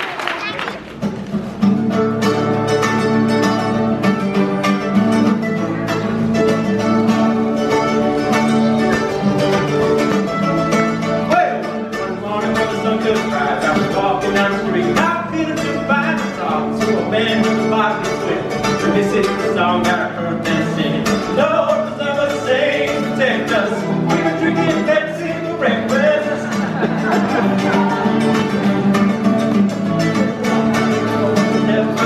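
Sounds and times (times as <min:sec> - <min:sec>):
acoustic guitar: 0:00.0 - 0:32.0
mandolin: 0:00.0 - 0:32.0
person singing: 0:11.6 - 0:26.5, 0:30.3 - 0:32.0.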